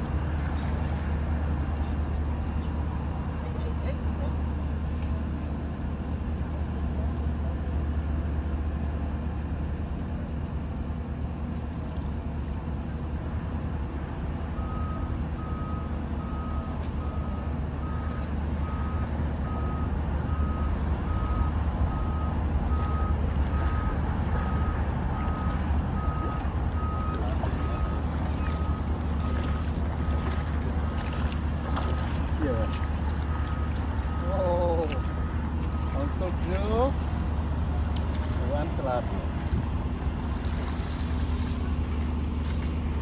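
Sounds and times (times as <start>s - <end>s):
water splashing and dripping: 0.0s - 1.9s, 22.4s - 43.0s
low traffic rumble: 0.0s - 43.0s
reversing alarm beeping: 14.6s - 36.9s.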